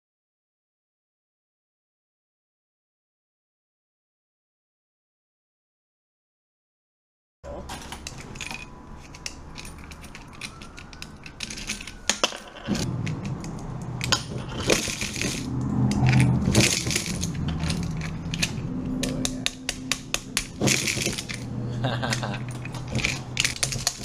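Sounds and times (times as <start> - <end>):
coins clinking: 7.5 - 24.0
coins dropping into plastic jar: 7.6 - 24.0
low rumble: 12.7 - 24.0.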